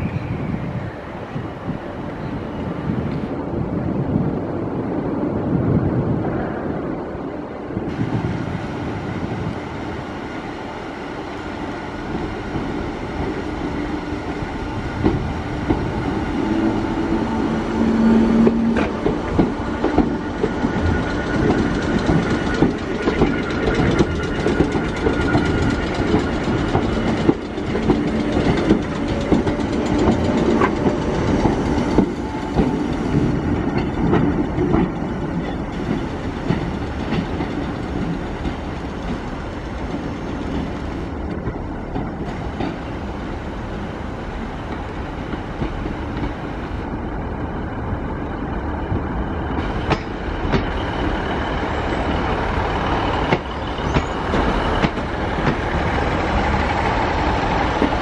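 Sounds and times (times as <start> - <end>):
train wheels clacking over rail joints: 18.4 - 42.9, 52.0 - 58.0.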